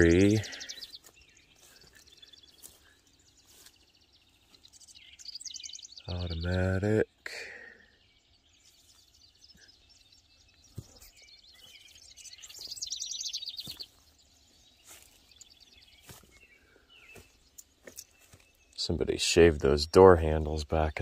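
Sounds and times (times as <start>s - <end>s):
bird trilling: 11.6s - 14.0s.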